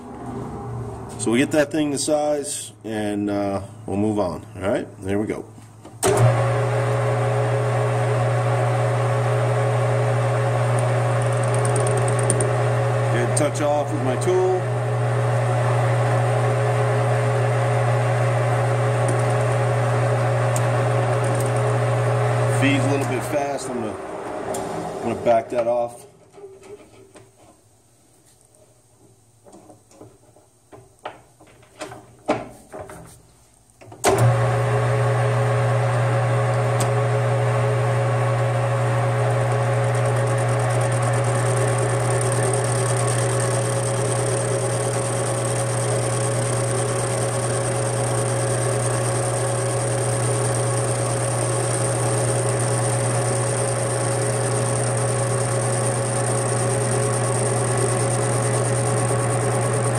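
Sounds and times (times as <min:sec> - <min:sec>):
lathe motor humming: 0:06.2 - 0:25.5, 0:34.2 - 0:59.9.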